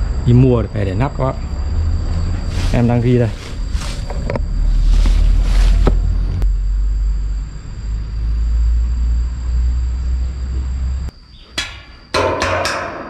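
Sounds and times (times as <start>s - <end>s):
sharp knocks on metal stand: 11.6s - 13.0s.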